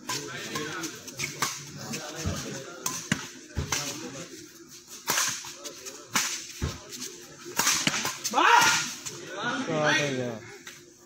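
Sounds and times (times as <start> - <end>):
rackets striking shuttlecock: 0.0 - 4.0, 5.0 - 6.8, 7.5 - 9.0.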